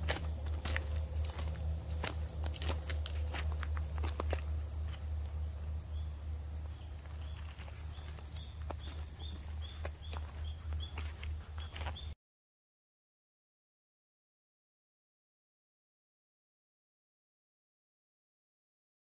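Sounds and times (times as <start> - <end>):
low rumble: 0.0 - 7.3
footsteps on a path: 0.0 - 12.2
insects buzzing: 0.0 - 12.2.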